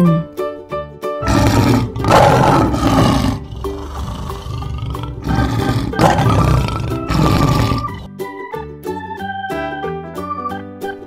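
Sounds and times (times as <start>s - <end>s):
light background music: 0.0s - 11.0s
lion roaring: 1.2s - 8.1s.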